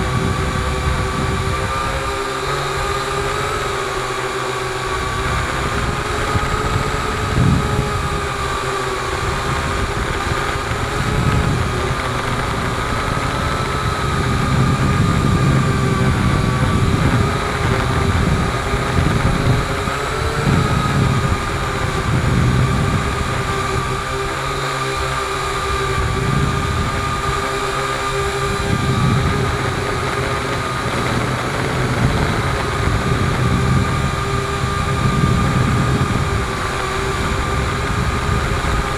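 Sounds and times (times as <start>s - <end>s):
drone propellers whining: 0.0s - 38.9s
wind buffeting microphone: 0.0s - 38.9s.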